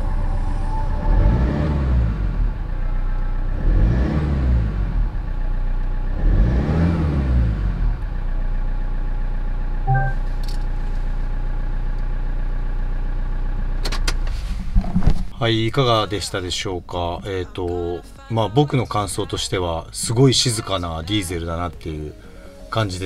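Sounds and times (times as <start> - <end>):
diesel engine revving and idling: 0.0 - 14.2.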